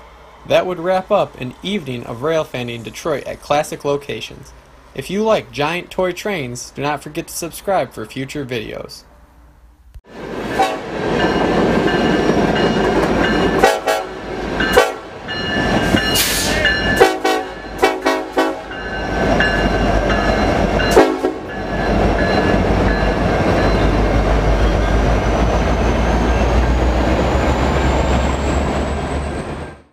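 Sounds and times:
freight train rumbling past: 0:00.0 - 0:07.2, 0:09.1 - 0:29.9
locomotive horn blasts: 0:10.6 - 0:10.9, 0:13.6 - 0:15.2, 0:16.2 - 0:18.9, 0:20.9 - 0:21.6.

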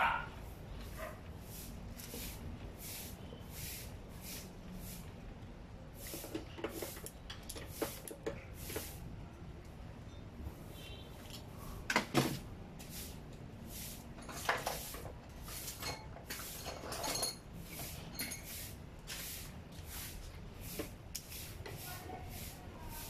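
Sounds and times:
faint regular scraping: 0:12.8 - 0:23.0
metallic clinks and knocks: 0:15.8 - 0:18.5.

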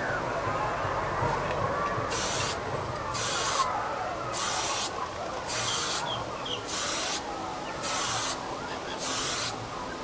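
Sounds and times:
spray paint can hissing: 0:09.0 - 0:09.6.

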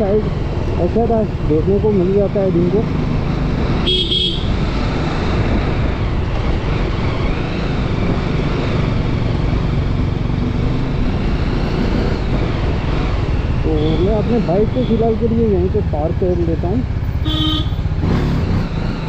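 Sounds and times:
road noise: 0:00.0 - 0:19.0
motorcycle engine running: 0:13.2 - 0:19.0.

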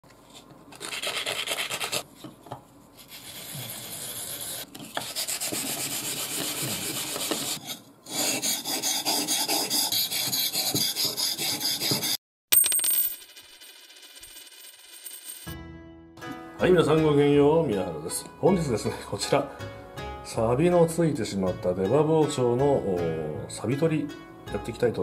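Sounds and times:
sandpaper scrubbing steel blade: 0:00.8 - 0:02.0, 0:03.0 - 0:12.2.

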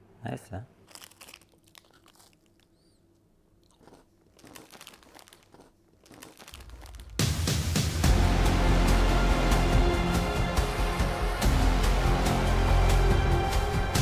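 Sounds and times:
person chewing and crunching food: 0:00.8 - 0:07.3
small clicks and crackles: 0:03.7 - 0:07.1
loud music: 0:07.2 - 0:14.0.

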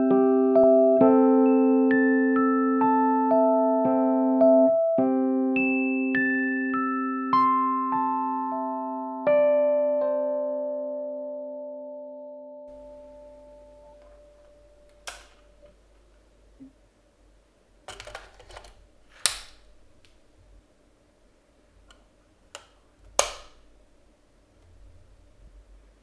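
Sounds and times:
sharp plastic clicks: 0:21.9 - 0:23.6.

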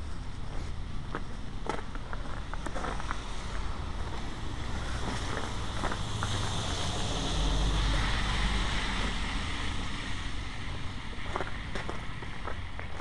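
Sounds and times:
truck driving past on wet street: 0:03.1 - 0:12.2.

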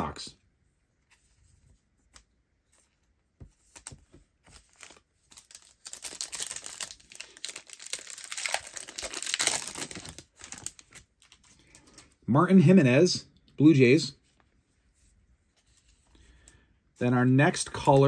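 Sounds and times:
foil wrapper crinkling and tearing: 0:04.5 - 0:11.4.

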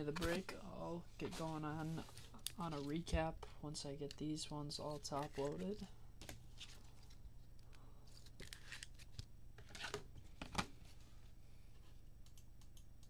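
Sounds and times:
cards scraping into plastic sleeves: 0:04.9 - 0:05.9, 0:08.1 - 0:10.0.

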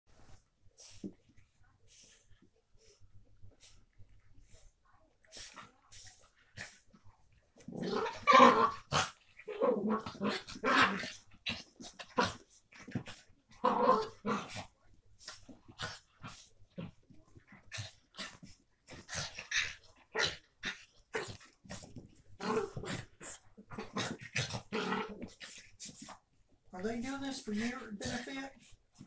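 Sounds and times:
dogs growling: 0:05.3 - 0:26.8.

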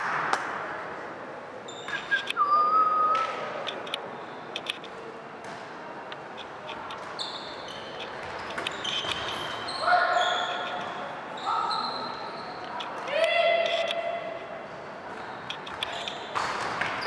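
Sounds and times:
sneaker squeaking on court floor: 0:01.7 - 0:02.3, 0:06.9 - 0:13.0, 0:15.1 - 0:17.0.

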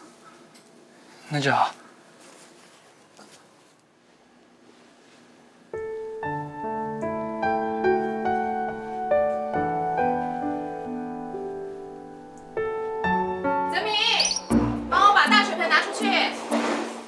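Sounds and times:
soft slow piano music: 0:05.7 - 0:17.0.

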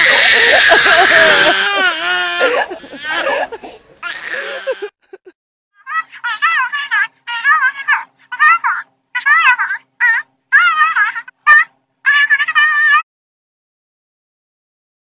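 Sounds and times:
baby laughing: 0:00.0 - 0:05.0, 0:05.8 - 0:13.0.

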